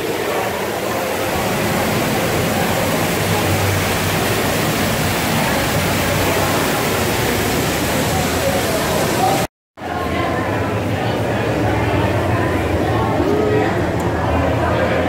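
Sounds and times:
steady rushing noise: 0.0s - 9.5s
faint crowd chatter: 0.0s - 15.0s.

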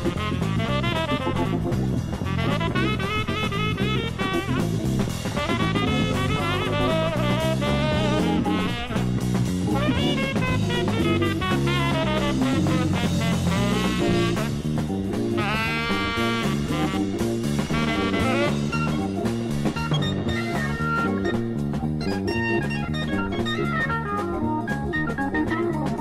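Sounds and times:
instrumental jazz-rock band: 0.0s - 26.0s.

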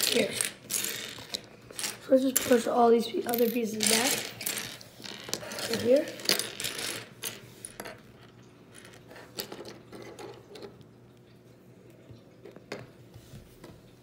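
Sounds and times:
plastic bricks clicking and rattling: 0.0s - 10.8s.

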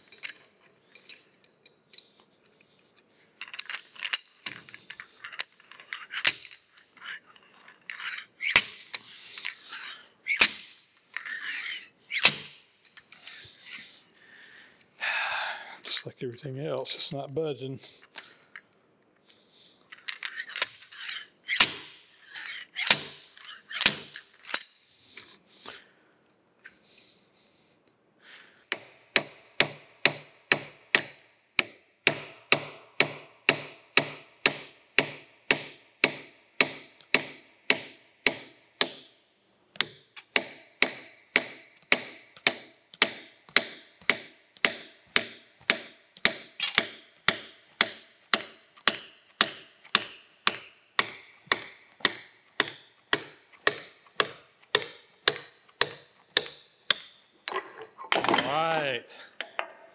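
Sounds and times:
hammer striking steel punch: 28.7s - 39.1s, 39.8s - 57.2s.

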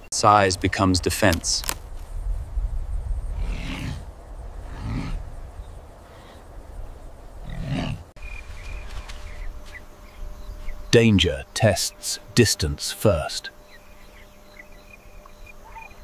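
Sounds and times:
rough roaring calls: 3.2s - 8.2s, 13.6s - 16.0s.

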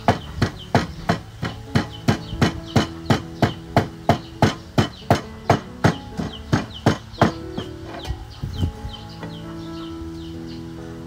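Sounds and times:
pestle pounding in a mortar: 0.0s - 7.8s.

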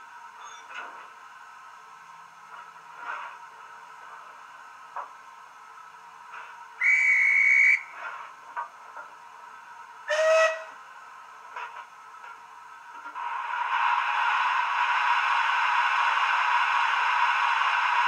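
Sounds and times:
steam hiss: 5.9s - 8.4s, 13.2s - 18.0s
steam locomotive whistle: 6.8s - 8.0s, 10.1s - 10.8s.

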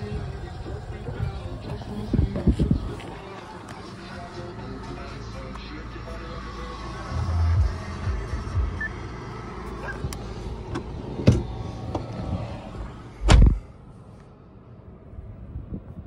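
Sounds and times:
car door shutting: 9.7s - 12.3s, 13.2s - 13.6s.

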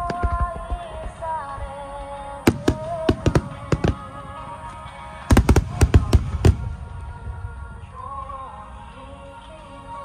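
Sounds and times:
music: 0.0s - 10.0s
firework bangs: 2.5s - 7.3s.

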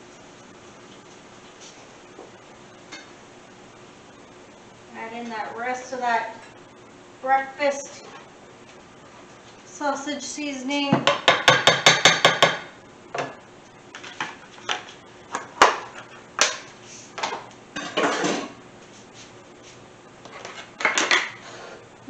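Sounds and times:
utensils and dishes clattering: 17.8s - 18.6s.

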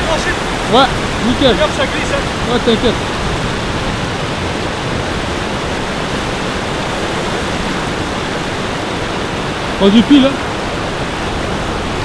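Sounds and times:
water rushing over weir: 0.0s - 12.0s.

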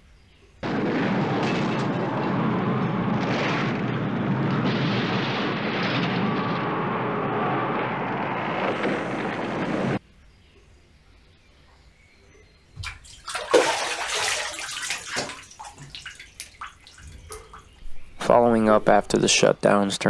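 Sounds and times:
explosion blast: 0.6s - 10.0s.

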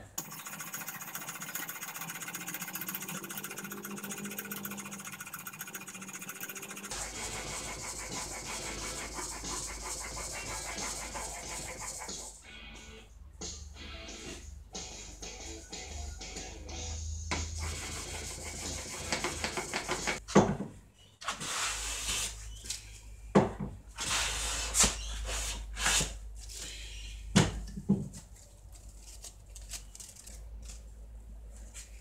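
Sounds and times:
steady rubbing: 1.5s - 12.4s
hand plane swishing on wood: 6.9s - 12.3s.

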